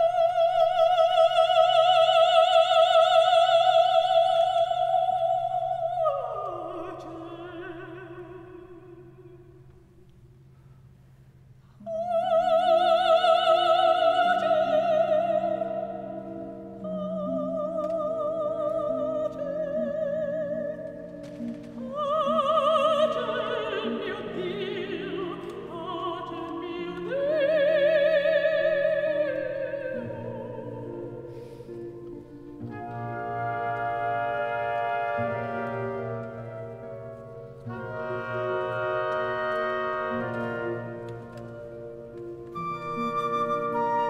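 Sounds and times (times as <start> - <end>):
soprano singing: 0.0 - 10.1, 11.8 - 44.0
orchestral accompaniment: 31.4 - 44.0.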